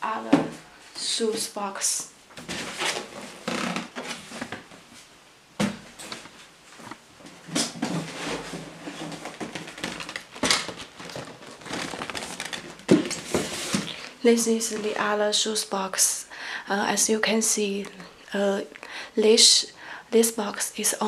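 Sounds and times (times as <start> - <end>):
cardboard rustling and scraping: 2.4 - 15.1
box knocks and bumps: 7.4 - 14.0.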